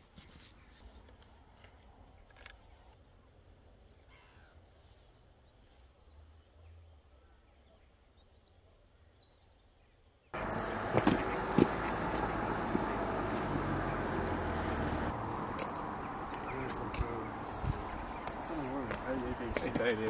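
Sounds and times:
noisy outdoor sound: 0.0 - 20.0
low outdoor rumble: 10.4 - 20.0.

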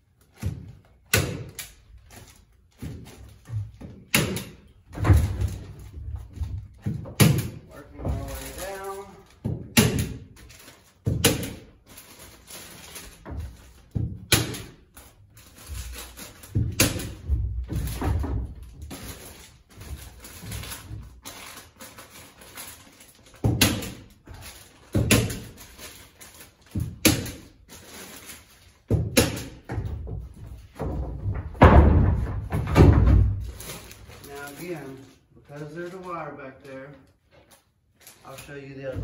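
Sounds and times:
paper rustling and crinkling: 7.6 - 9.4, 10.2 - 14.0, 14.6 - 28.9, 33.3 - 39.0
knocks against wood framing: 28.9 - 33.5.

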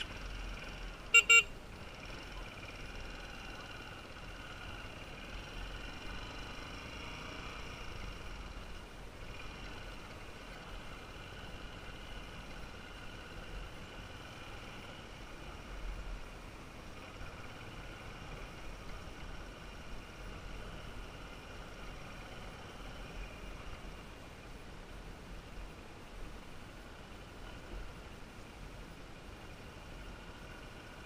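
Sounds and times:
motorbike running: 0.0 - 24.1
horn beeps: 1.1 - 1.5.

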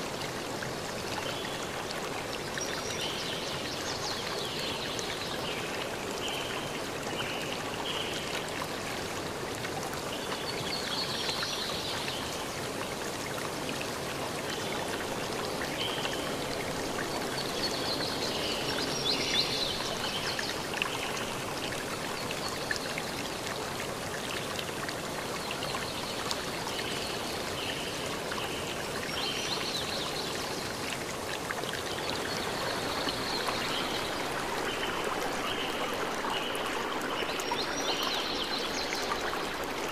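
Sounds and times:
water rushing: 0.0 - 39.9.

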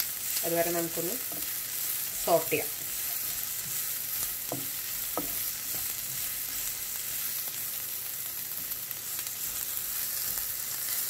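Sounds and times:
onion sizzling in oil: 0.0 - 11.0
spatula scraping pan: 1.2 - 7.6.

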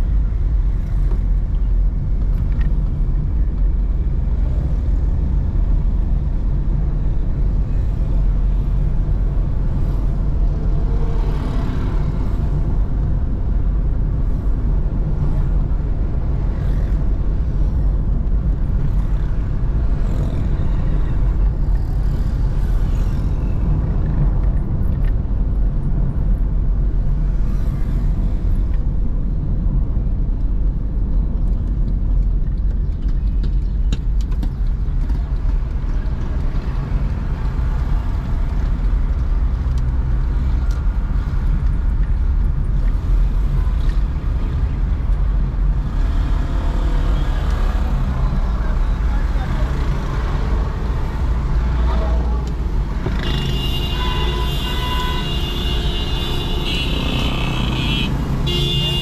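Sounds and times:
car engine and tyre noise: 0.0 - 59.0
passing traffic: 0.0 - 59.0.

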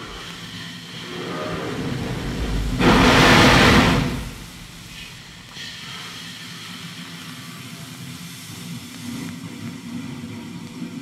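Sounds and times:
low rumble: 0.0 - 5.6
loud hiss of escaping steam: 0.0 - 8.7.

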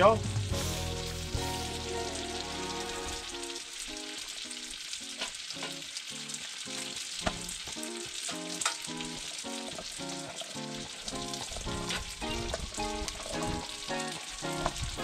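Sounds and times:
light melodic background music: 0.0 - 4.3, 7.8 - 15.0
food sizzling on griddle: 0.4 - 15.0.

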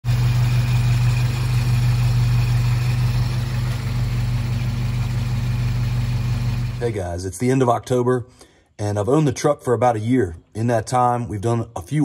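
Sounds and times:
car engine idling: 0.0 - 6.9.

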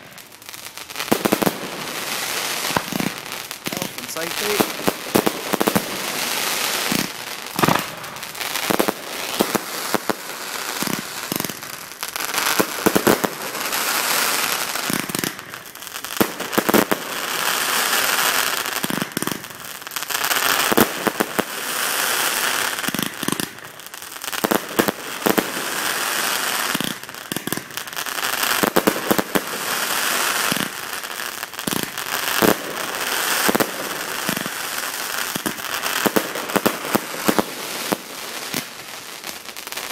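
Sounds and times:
fireworks bangs: 0.0 - 23.6, 24.2 - 39.9
fireworks crackling: 0.0 - 39.9.

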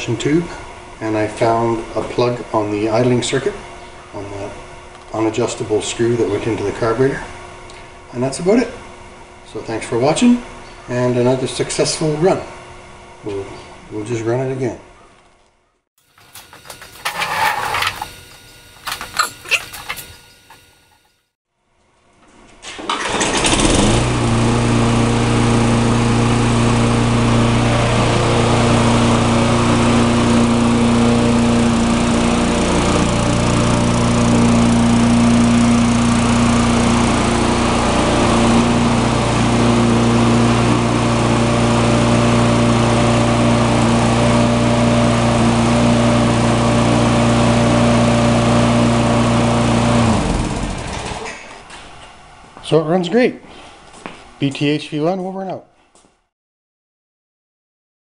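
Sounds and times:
lawn mower engine running: 16.0 - 21.1, 22.6 - 51.6.

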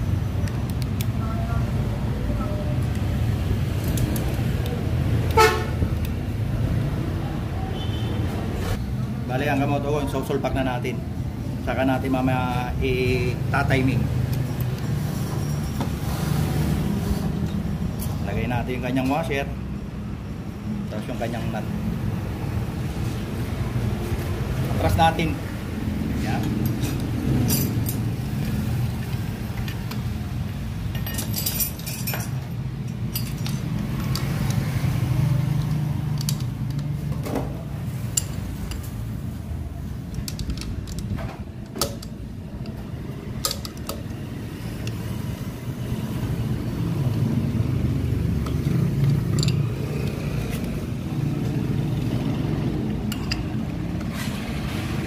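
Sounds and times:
wrench clicking on metal: 29.6 - 34.6, 35.6 - 37.0, 40.0 - 42.8, 43.4 - 45.1, 48.4 - 50.8.

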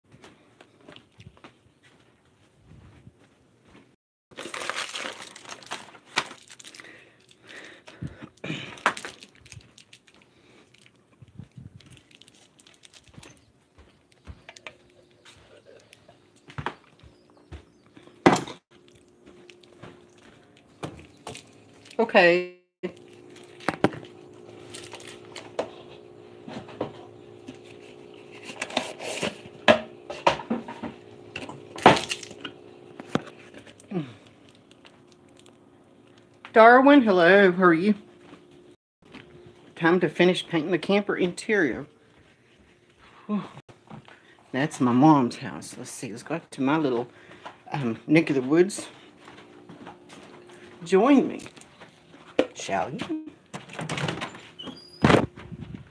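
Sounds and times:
rustling handling noise: 0.1 - 17.0, 18.7 - 22.2, 22.9 - 36.5
steady low hum: 6.6 - 53.6.

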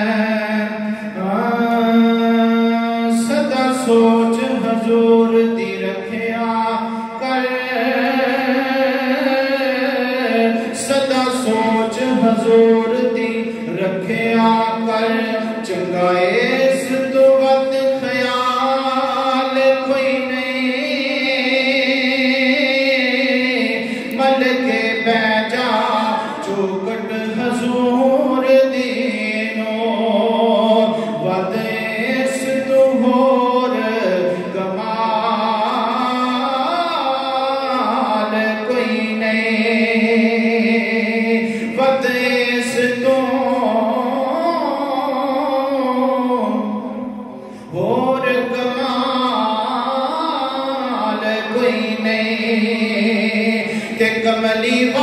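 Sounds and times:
man singing long held notes: 0.0 - 55.0.

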